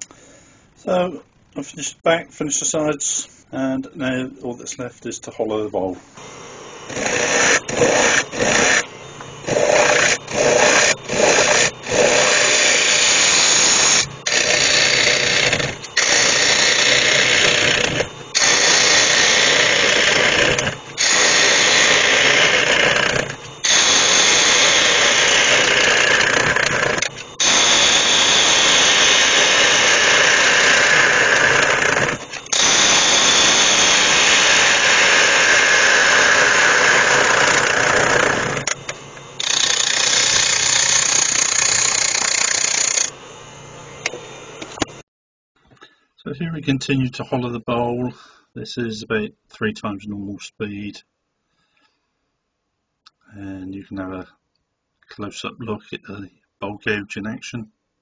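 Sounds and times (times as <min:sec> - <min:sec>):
gouge cutting wood on lathe: 0:06.6 - 0:43.2.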